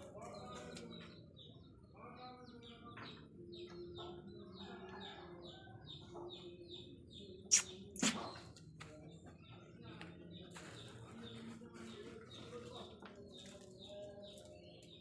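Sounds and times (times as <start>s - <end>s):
small bird chirping: 6.5s - 9.6s.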